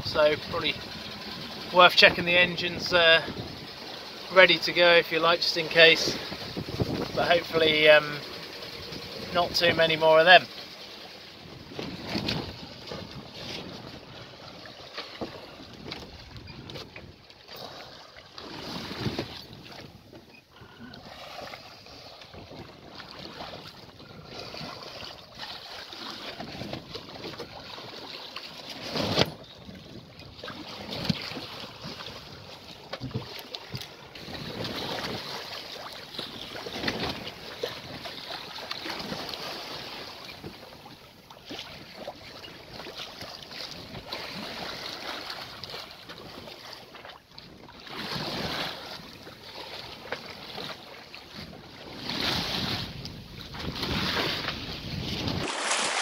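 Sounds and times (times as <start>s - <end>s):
wind buffeting microphone: 0.0s - 4.2s, 5.7s - 10.0s
water rushing along hull: 0.0s - 56.0s.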